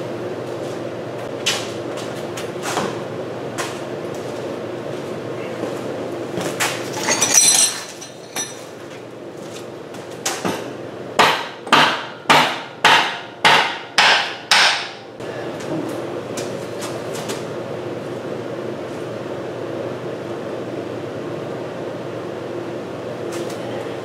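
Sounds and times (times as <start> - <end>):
steady hum: 0.0 - 24.0
metallic clatter: 6.9 - 8.6
sharp metal knocks: 11.2 - 15.0.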